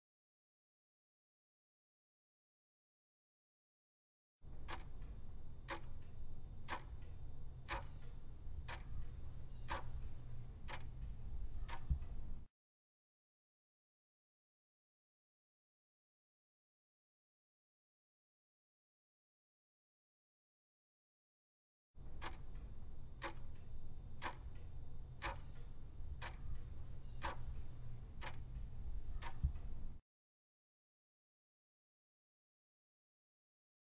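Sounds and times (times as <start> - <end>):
low steady hum: 4.4 - 12.5, 22.0 - 30.0
clock ticking: 4.5 - 12.5, 22.0 - 30.0.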